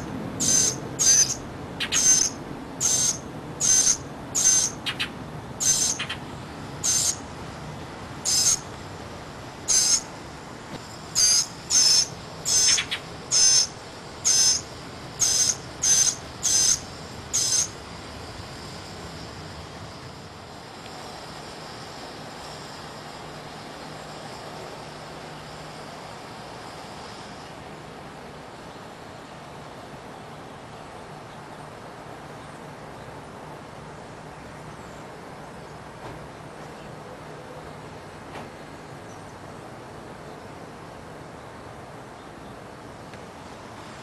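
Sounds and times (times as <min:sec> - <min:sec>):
fledgling bird begging calls: 0:00.0 - 0:07.3, 0:08.2 - 0:08.7, 0:09.7 - 0:10.1, 0:11.2 - 0:17.8.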